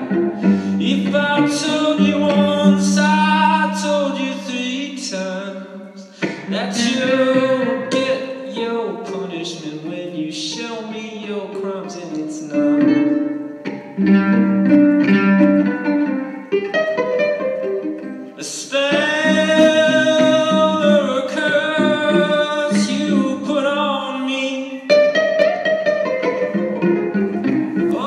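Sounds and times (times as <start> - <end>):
man singing: 0.0 - 13.4, 18.3 - 25.3, 27.8 - 28.0
plucked strings: 0.0 - 28.0.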